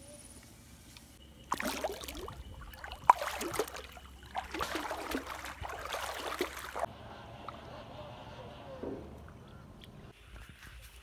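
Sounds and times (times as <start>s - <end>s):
floodwater splashing and sloshing: 1.4s - 6.9s.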